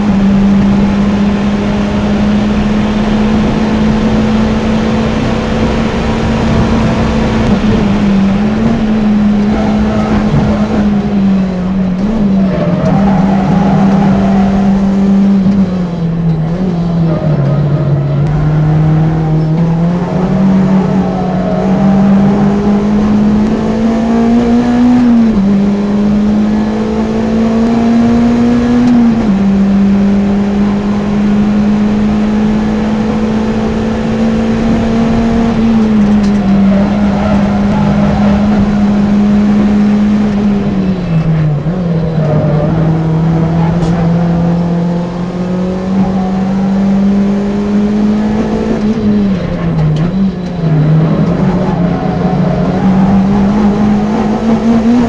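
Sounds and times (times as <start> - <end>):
wind noise: 0.0 - 12.6
car engine revving hard: 0.0 - 55.0.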